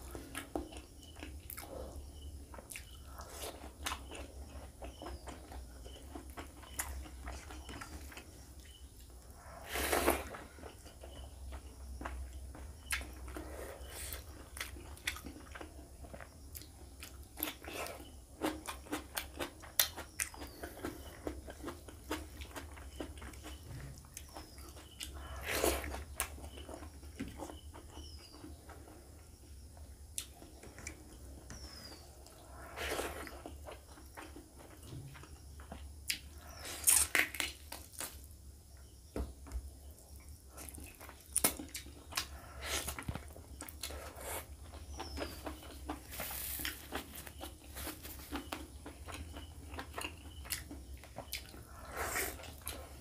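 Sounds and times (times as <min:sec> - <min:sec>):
wet chewing: 0:00.0 - 0:28.6, 0:39.9 - 0:53.0.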